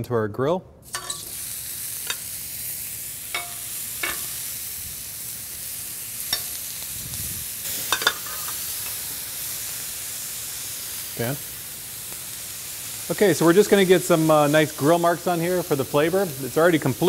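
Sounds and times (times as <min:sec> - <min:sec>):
octopus sizzling on a grill: 0:00.8 - 0:17.0
metal tongs clicking on grill: 0:00.9 - 0:01.4, 0:02.0 - 0:02.3, 0:03.3 - 0:04.4, 0:06.3 - 0:06.6, 0:07.7 - 0:09.0.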